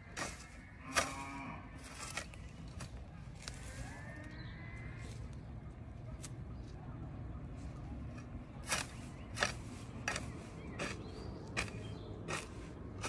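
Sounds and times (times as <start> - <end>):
garden hoe chopping into soil: 0.0 - 3.6, 8.1 - 13.0.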